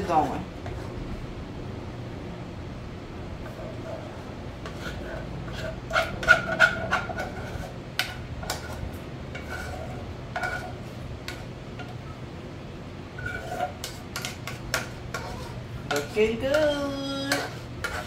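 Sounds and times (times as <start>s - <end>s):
utensil scraping a mixing bowl: 3.4s - 12.0s, 13.1s - 18.0s.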